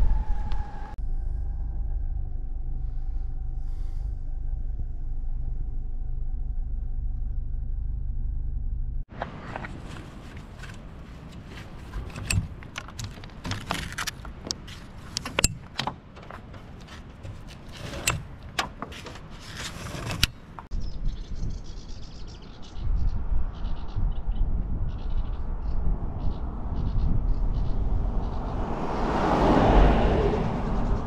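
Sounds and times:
wind rumbling on microphone: 0.0 - 7.8, 8.6 - 31.0
rope rubbing and sliding: 9.1 - 15.6, 16.2 - 20.7.

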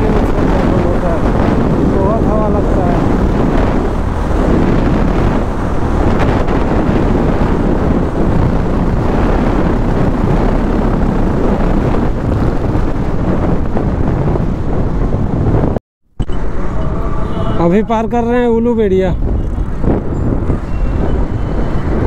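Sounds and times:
motorcycle engine: 0.0 - 15.4
wind buffeting microphone: 0.0 - 22.0.

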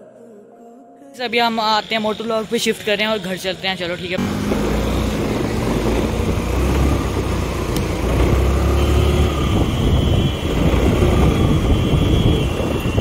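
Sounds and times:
motorcycle engine running: 4.1 - 13.0
wind rumble on microphone: 4.6 - 13.0.

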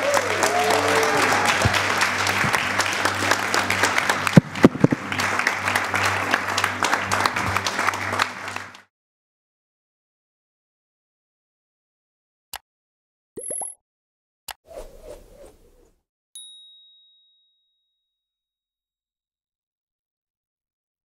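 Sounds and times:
band playing low music: 0.0 - 8.8
people cheering: 0.0 - 8.8
crowd applauding: 0.0 - 8.9
sharp claps: 0.0 - 8.9.

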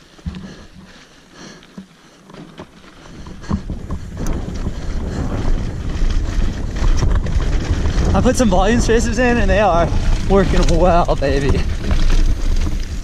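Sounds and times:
bike clicks and rattles: 0.0 - 13.0
wind rumbling on microphone: 2.6 - 13.0.

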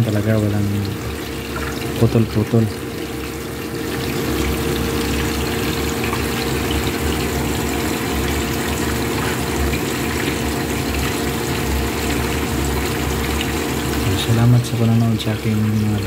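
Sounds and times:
fish sizzling in hot oil: 2.8 - 14.1.

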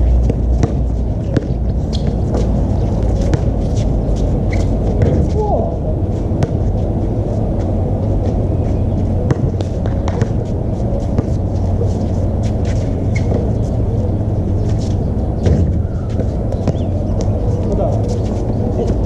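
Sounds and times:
ball and sneakers on court: 0.0 - 19.0
low rumble: 0.0 - 19.0
faint voices: 8.6 - 19.0.

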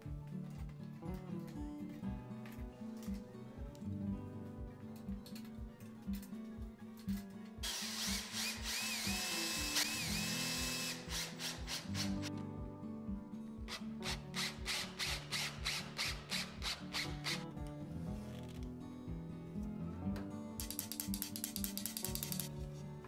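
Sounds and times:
guitar background music: 0.0 - 23.0
power drill whining: 7.6 - 12.3.

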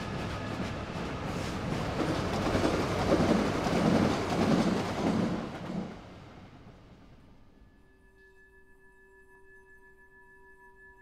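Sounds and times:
train passing: 0.0 - 7.6.

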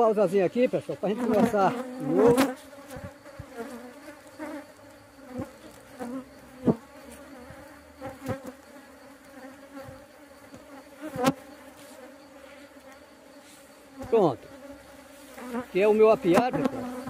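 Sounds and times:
honeybees buzzing: 0.0 - 17.0.

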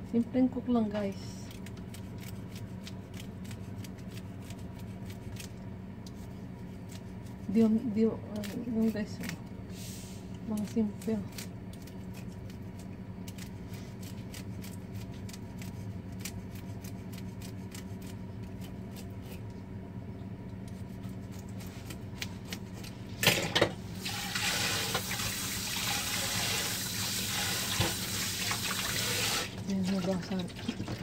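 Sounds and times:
knife scraping fish scales: 1.5 - 7.6, 10.6 - 19.5
water running into sink: 24.0 - 31.0.

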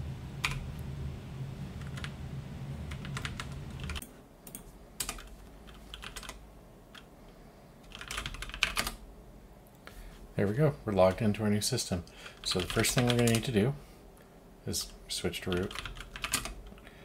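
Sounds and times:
low hum: 0.0 - 7.9
typing on a computer keyboard: 1.8 - 2.1, 2.9 - 7.1, 7.8 - 9.0, 12.3 - 13.5, 15.5 - 16.9.

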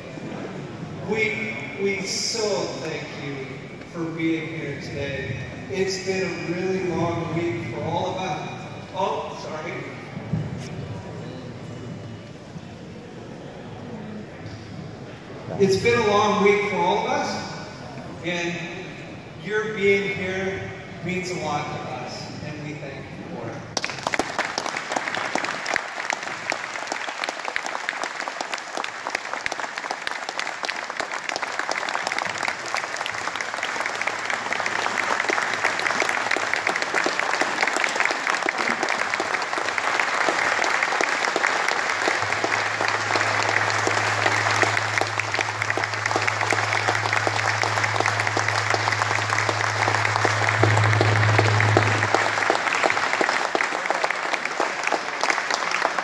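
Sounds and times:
audience applauding: 23.8 - 56.0
low steady hum: 32.6 - 54.2.

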